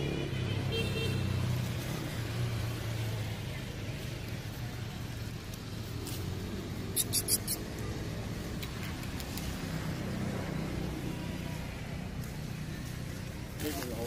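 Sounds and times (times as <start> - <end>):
high-pitched squeaks: 6.9 - 7.7.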